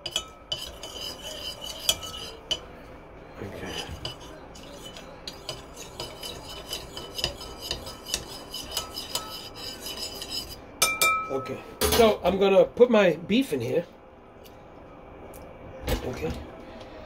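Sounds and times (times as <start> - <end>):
spoon clinking in ceramic bowl: 0.0 - 1.1, 10.8 - 11.6.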